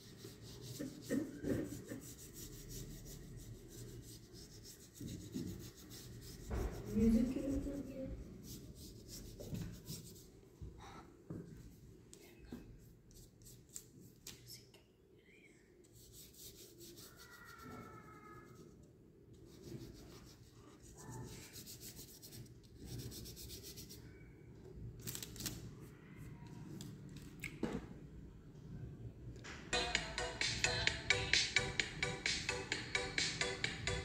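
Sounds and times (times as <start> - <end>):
paintbrush scrubbing on paper: 0.0 - 10.4, 16.0 - 18.7, 19.4 - 24.2.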